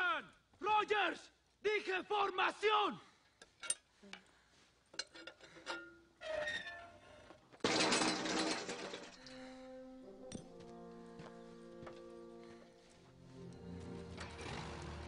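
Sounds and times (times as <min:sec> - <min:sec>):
flagpole crashing to ground: 0:07.6 - 0:09.3
sustained orchestral notes: 0:09.6 - 0:15.0.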